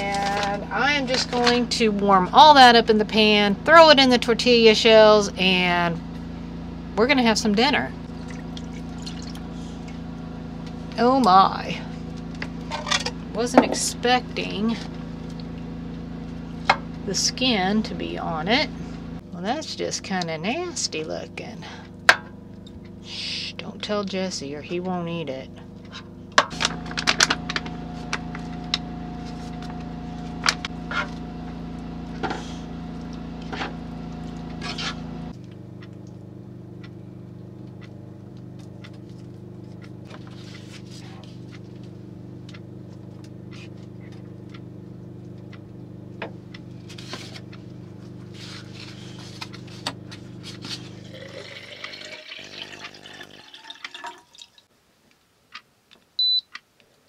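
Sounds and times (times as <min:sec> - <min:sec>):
steady electrical hum: 0:00.0 - 0:56.4
water pouring into a kettle: 0:51.0 - 0:54.6.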